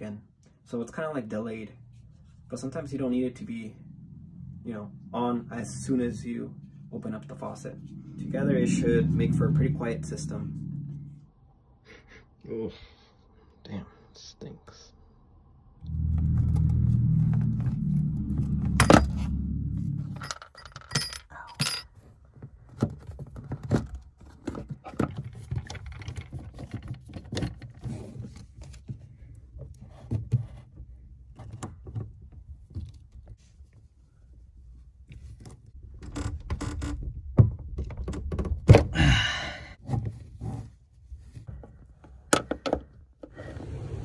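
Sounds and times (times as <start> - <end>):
low steady hum: 0.0 - 22.0
pliers and hose clamps clinking: 20.1 - 21.9.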